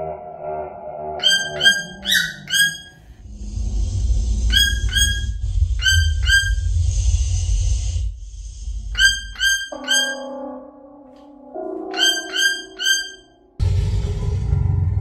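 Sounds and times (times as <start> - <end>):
toucan calls: 1.2 - 3.0, 4.5 - 6.7, 8.9 - 10.4, 11.8 - 13.4
low rumble: 3.0 - 9.0, 13.6 - 15.0.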